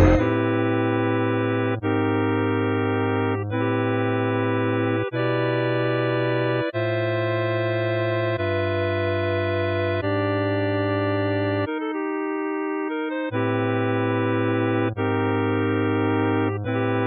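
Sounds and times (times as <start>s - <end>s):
slow held music chords: 0.0s - 0.8s.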